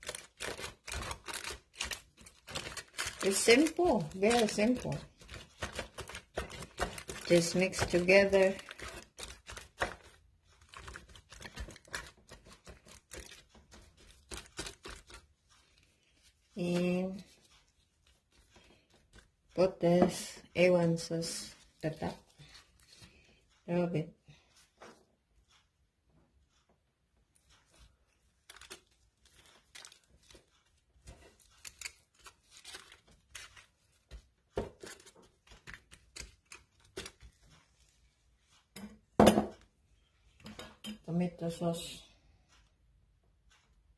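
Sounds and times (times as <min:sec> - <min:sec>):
hands squishing ground meat: 0:00.0 - 0:19.4
plastic gloves crinkling: 0:00.0 - 0:20.5, 0:27.4 - 0:38.6.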